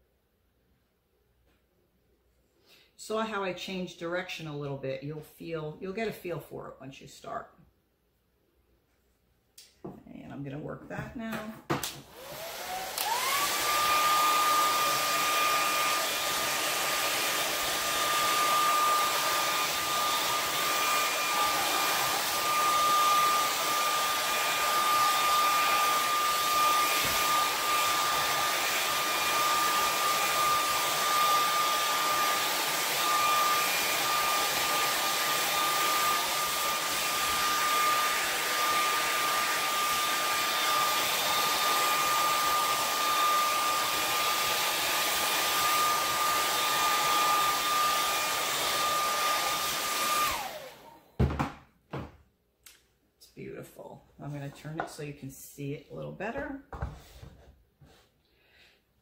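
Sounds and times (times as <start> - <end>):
hair dryer motor whine: 11.4 - 51.5.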